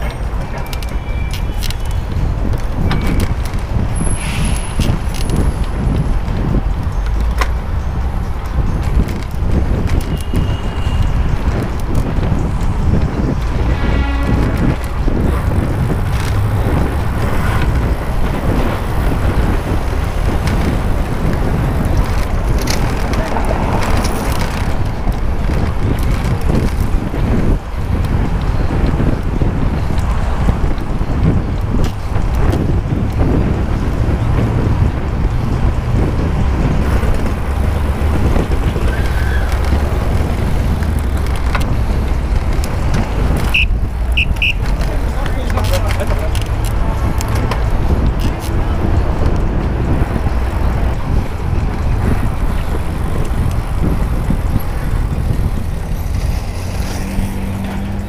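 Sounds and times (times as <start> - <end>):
bicycle tyre noise: 0.0 - 58.0
city road traffic: 0.0 - 58.0
wind on microphone: 0.0 - 58.0.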